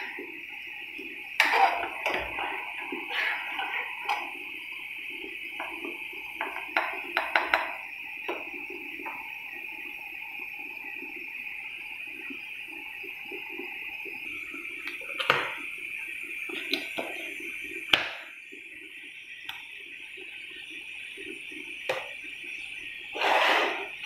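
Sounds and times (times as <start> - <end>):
syrup boiling in a pan: 0.0 - 24.0.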